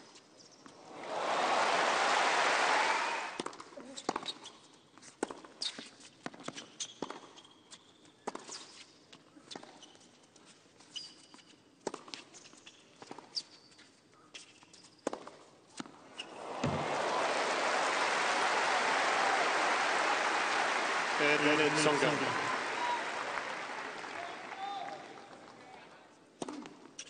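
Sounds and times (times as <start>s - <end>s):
crowd applause: 0.8s - 3.4s, 16.3s - 25.8s
hushed stadium crowd: 0.8s - 3.4s, 16.2s - 26.1s
sneaker squeaks: 5.6s - 8.9s, 9.5s - 10.1s, 10.8s - 11.6s, 12.2s - 15.0s, 16.1s - 16.8s.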